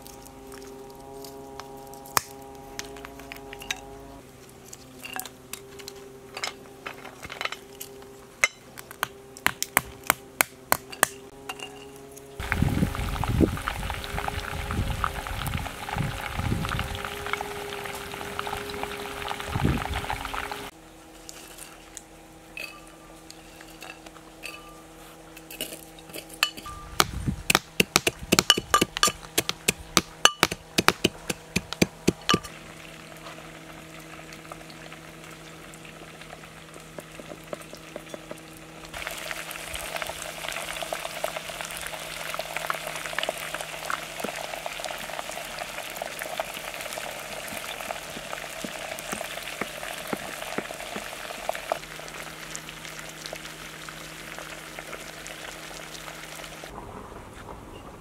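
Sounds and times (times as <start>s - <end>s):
metal pestle pounding in mortar: 26.5s - 32.5s.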